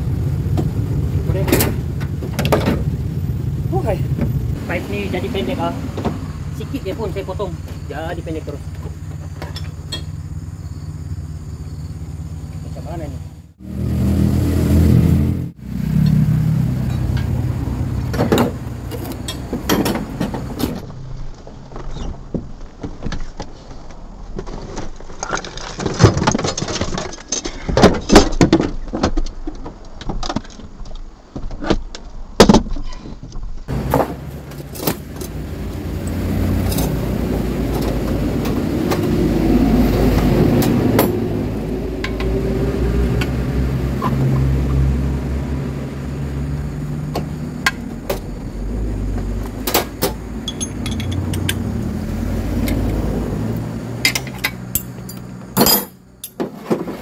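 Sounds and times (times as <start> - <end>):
engine running: 0.0 - 21.5, 33.7 - 56.4
metallic clinks and knocks: 9.2 - 10.2, 49.6 - 51.7, 54.0 - 56.5.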